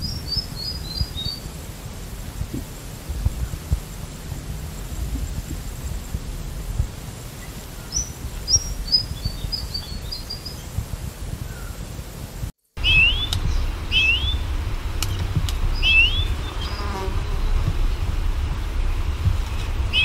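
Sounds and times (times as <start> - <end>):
low recording noise rumble: 0.0 - 20.0
bird whistling rising notes: 12.8 - 14.5, 15.1 - 17.6.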